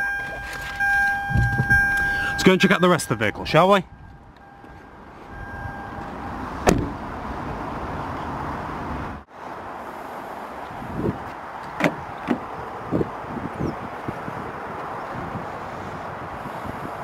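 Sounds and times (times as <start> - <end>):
car door shutting: 0.2 - 2.5, 6.0 - 7.0.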